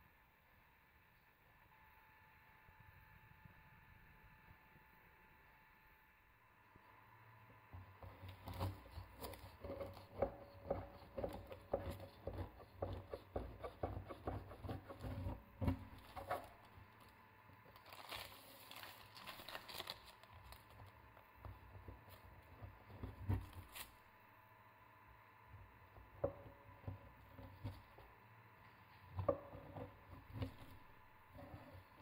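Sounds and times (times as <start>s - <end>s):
knife crunching through meringue: 17.7s - 20.8s.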